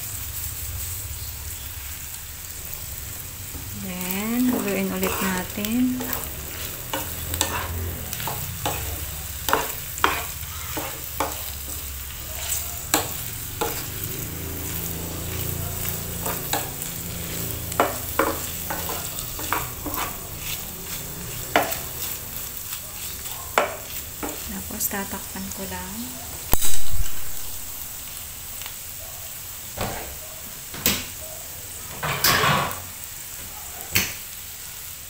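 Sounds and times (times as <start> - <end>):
meat sizzling: 0.0 - 35.0
wooden spatula scraping a pan: 4.0 - 25.6.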